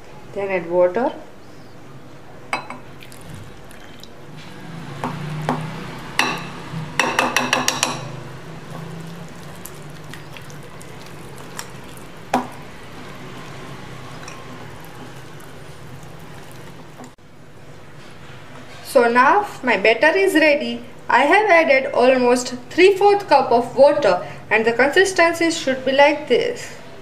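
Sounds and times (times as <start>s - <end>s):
water pouring into flour: 3.0s - 4.2s, 8.6s - 17.1s
whisk mixing batter: 8.6s - 17.2s.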